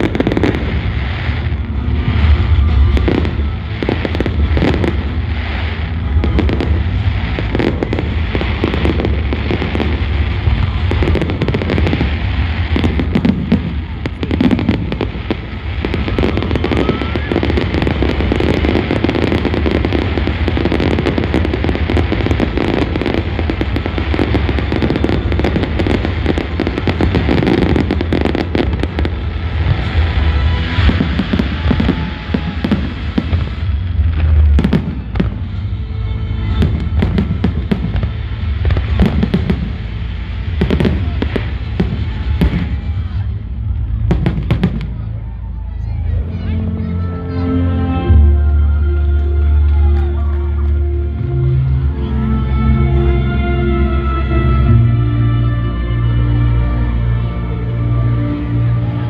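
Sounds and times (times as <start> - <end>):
fireworks bangs and crackling: 0.0 - 46.6, 49.2 - 59.0.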